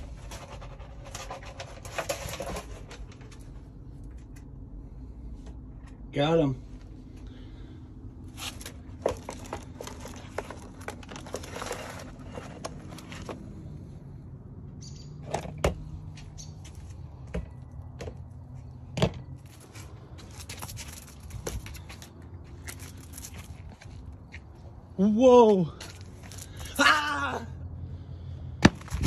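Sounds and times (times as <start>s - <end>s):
plastic scoop rustling and scraping: 0.0s - 3.7s, 8.3s - 13.6s
steady low hum: 0.0s - 25.2s.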